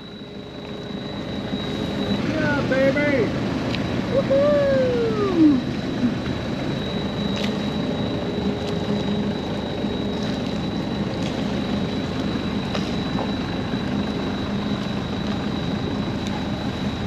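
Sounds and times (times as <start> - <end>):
boat engine running: 0.0 - 17.0
thin high whine: 0.0 - 17.0.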